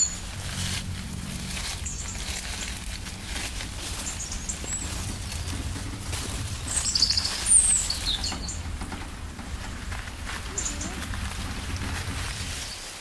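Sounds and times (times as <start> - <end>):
outdoor background noise: 0.0 - 13.0
small songbird chirping: 1.7 - 3.2, 3.8 - 9.3.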